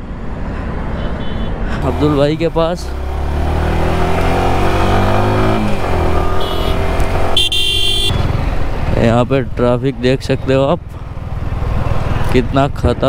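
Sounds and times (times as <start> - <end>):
motorcycle engine accelerating: 1.8 - 9.6.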